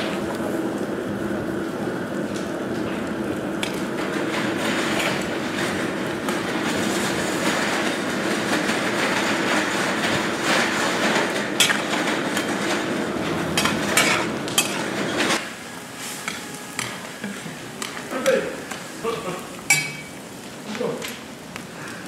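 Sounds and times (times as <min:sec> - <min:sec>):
metal utensils clinking on pots: 0:13.6 - 0:14.9, 0:19.7 - 0:20.1.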